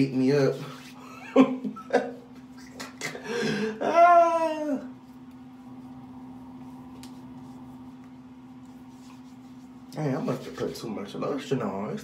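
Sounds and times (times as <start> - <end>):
steady low hum: 0.0 - 12.0
man's wordless vocal cry: 3.3 - 4.9.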